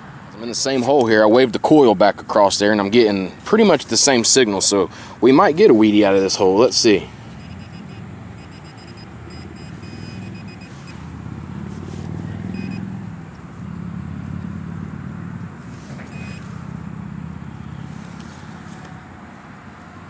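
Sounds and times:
metal detector beeps: 7.2s - 11.1s, 12.5s - 12.9s, 16.0s - 16.5s.

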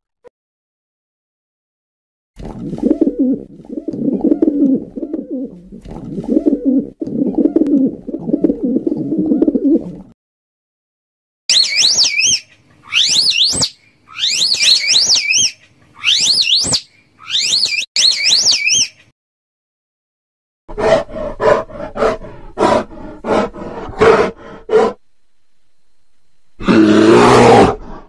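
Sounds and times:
high-pitched whistling calls: 11.5s - 19.1s
bear grunting and growling: 20.7s - 25.0s, 26.6s - 28.0s.

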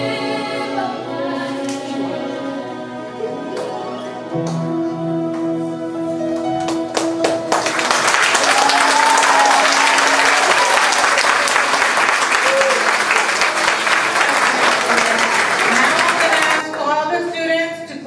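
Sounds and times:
audience applause: 6.7s - 16.8s
person cheering: 8.4s - 11.7s, 12.3s - 13.5s.

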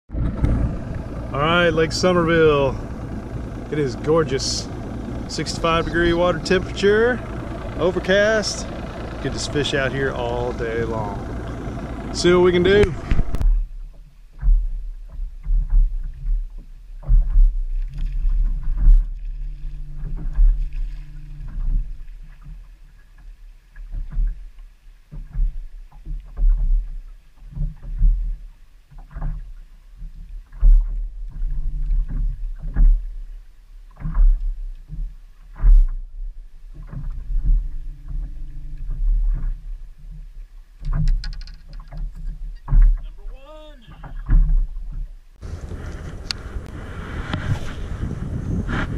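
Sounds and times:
low hum: 0.1s - 48.9s
low thumps and knocks: 0.1s - 48.9s
water slapping boat hull: 0.1s - 48.9s.

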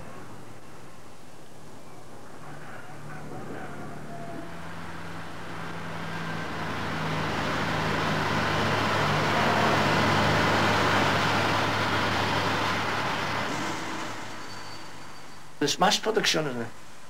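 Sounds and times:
diesel engine running: 2.5s - 14.4s.

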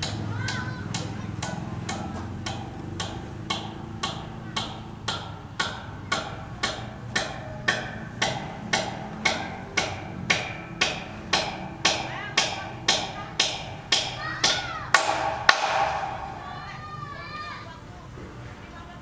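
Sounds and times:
hammer blows on steel beam: 0.0s - 17.4s
faint voices: 12.0s - 19.0s.

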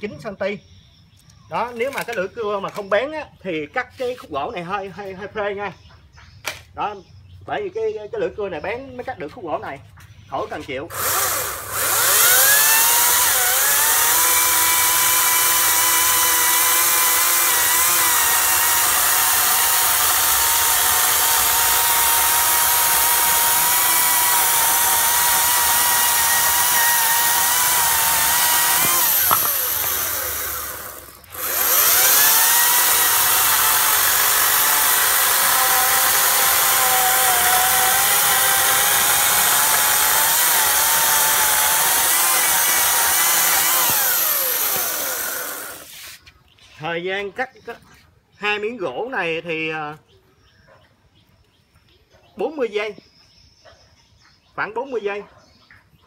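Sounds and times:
electric chainsaw motor whine: 10.9s - 46.2s.

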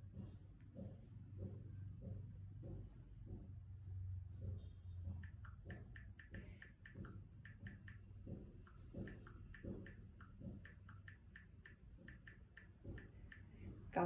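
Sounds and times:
tapping on touchscreen: 4.4s - 14.0s.

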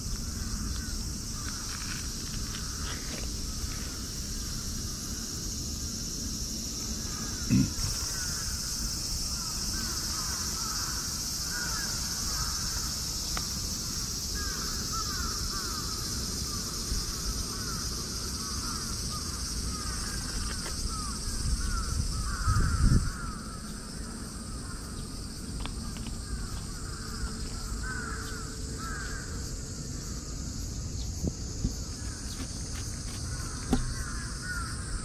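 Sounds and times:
insects hissing: 0.0s - 35.0s
birds calling: 6.9s - 35.0s
dull knock: 32.4s - 34.0s.

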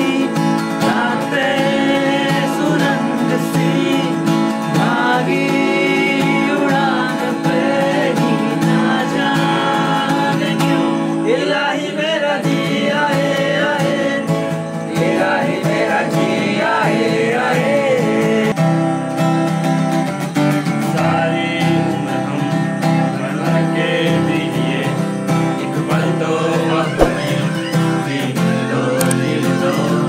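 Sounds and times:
man singing: 0.0s - 14.4s, 21.0s - 30.0s
acoustic guitar strumming: 0.0s - 30.0s.

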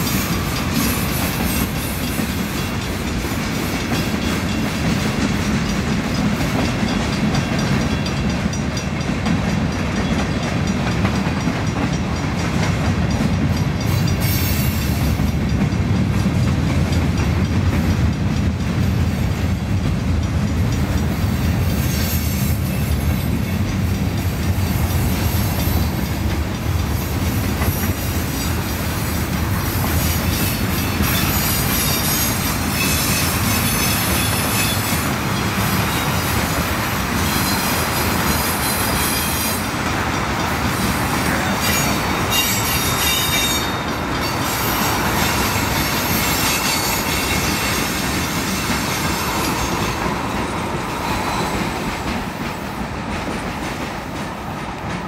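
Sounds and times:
freight train cars rolling: 0.0s - 55.0s
high-pitched wheel squeal: 41.6s - 50.0s.

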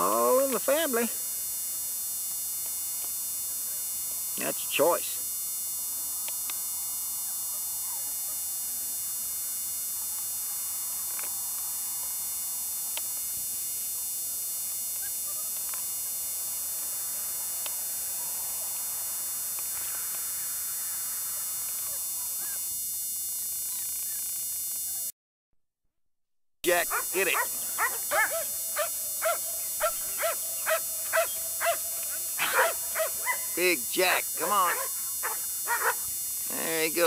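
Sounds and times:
electrical hum and hiss: 0.0s - 25.1s, 26.6s - 37.0s.

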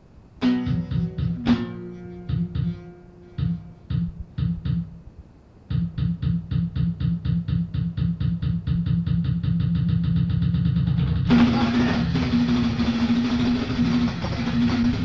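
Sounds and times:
drum thumps with sharp crack: 0.4s - 5.0s, 5.7s - 15.0s
band music with pounding beat: 5.7s - 15.0s.

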